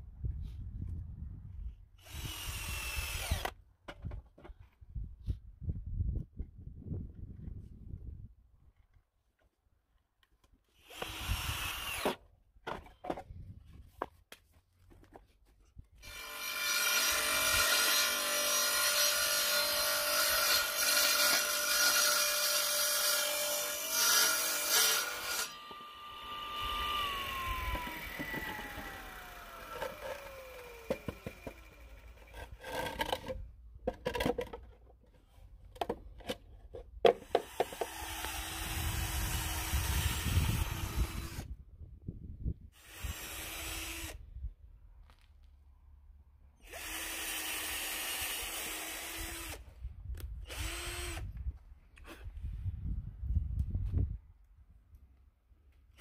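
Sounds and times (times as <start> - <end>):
cordless drill driving screws: 2.0 - 3.6, 10.8 - 12.2, 16.0 - 33.2, 37.2 - 41.5, 42.8 - 44.2, 46.6 - 49.7, 50.4 - 51.4
table saw cutting wood: 16.0 - 32.5
saw blade winding down: 16.1 - 32.3.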